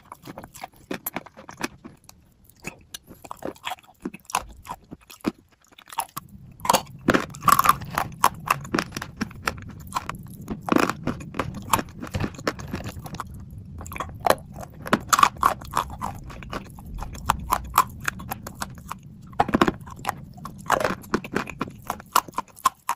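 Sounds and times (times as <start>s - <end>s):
crunching and chewing clay chunks: 0.0s - 22.9s.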